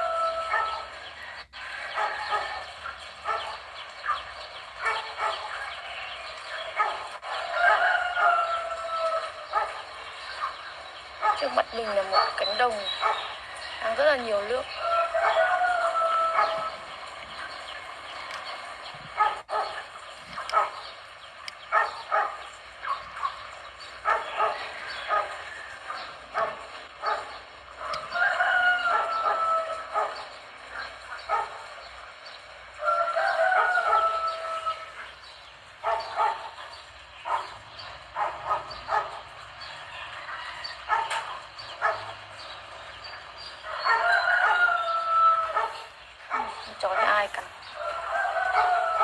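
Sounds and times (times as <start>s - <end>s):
rooster crowing: 0.0s - 3.4s, 6.8s - 10.5s, 11.3s - 18.4s, 24.0s - 31.4s, 32.2s - 35.2s, 38.5s - 42.5s, 43.6s - 49.0s
dog barking: 0.2s - 1.0s, 1.8s - 5.8s, 6.7s - 8.6s, 9.2s - 13.4s, 15.1s - 16.8s, 19.1s - 20.9s, 21.6s - 31.8s, 32.8s - 35.2s, 35.8s - 40.0s, 40.6s - 42.5s, 43.6s - 49.0s.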